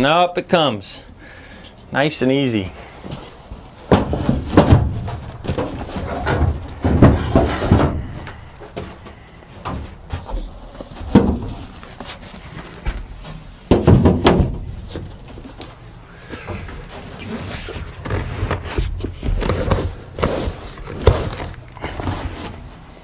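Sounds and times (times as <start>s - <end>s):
seat cushions thumping and knocking: 3.9s - 8.4s, 12.9s - 15.3s.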